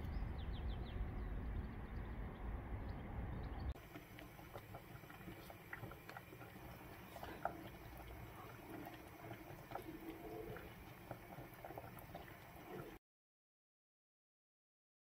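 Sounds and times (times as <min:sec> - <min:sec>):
sauce simmering in a pan: 0:03.7 - 0:13.0
wooden spoon stirring: 0:03.8 - 0:13.0.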